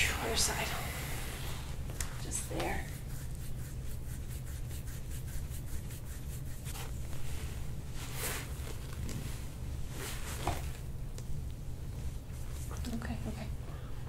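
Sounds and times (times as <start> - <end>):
steady low hum: 0.0 - 14.0
hands rubbing skin: 2.0 - 10.6.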